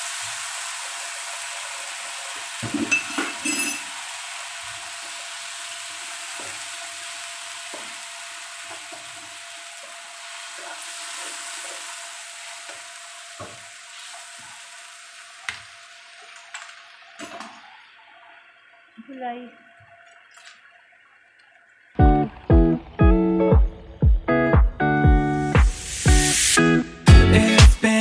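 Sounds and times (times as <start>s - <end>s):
food sizzling in a wok: 0.0s - 19.4s, 25.7s - 26.6s.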